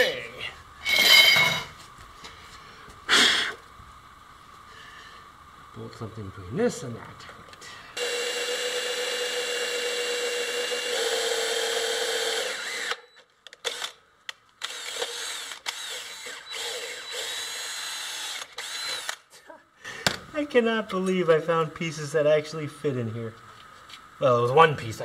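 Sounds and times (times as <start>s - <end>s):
cordless drill boring into metal: 8.0s - 14.0s, 14.6s - 19.2s.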